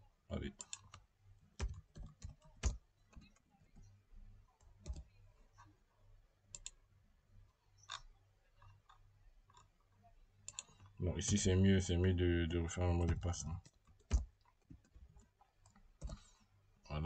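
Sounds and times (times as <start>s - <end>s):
mouse clicks: 6.5s - 6.8s, 10.4s - 11.4s.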